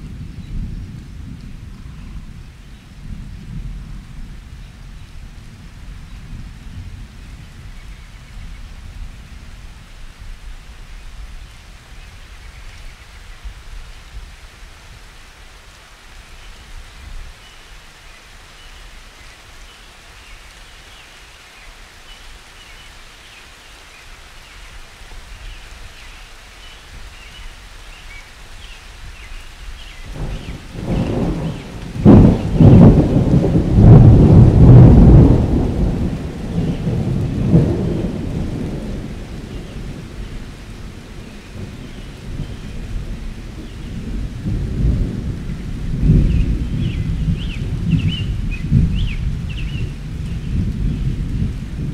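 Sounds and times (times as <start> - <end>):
thunder rumble: 30.0 - 51.9.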